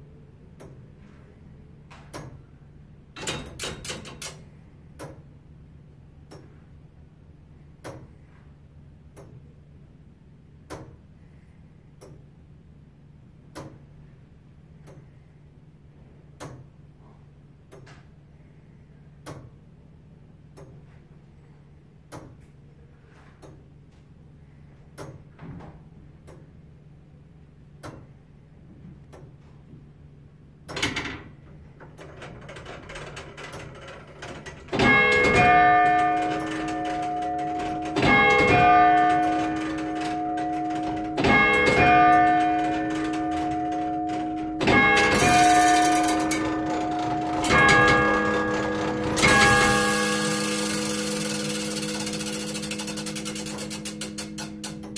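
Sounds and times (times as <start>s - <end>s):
clock mechanism clack: 3.2s - 4.4s, 30.7s - 54.9s
striking mechanism whirring: 32.4s - 54.9s
clock bell ringing: 33.8s - 54.9s
clock ticking: 34.2s - 54.9s.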